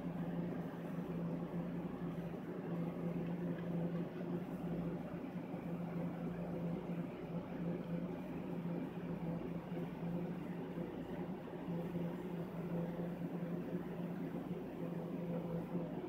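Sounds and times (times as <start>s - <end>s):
low mechanical hum with hiss: 0.0s - 16.0s.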